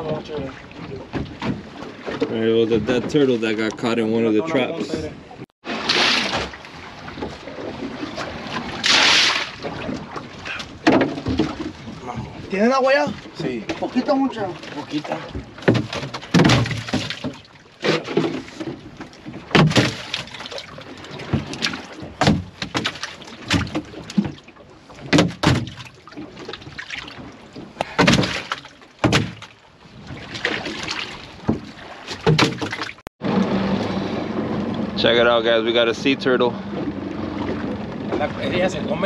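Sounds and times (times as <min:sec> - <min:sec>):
water sloshing: 0:00.0 - 0:39.0
fish thrashing against fiberglass: 0:05.6 - 0:12.4, 0:13.0 - 0:34.7.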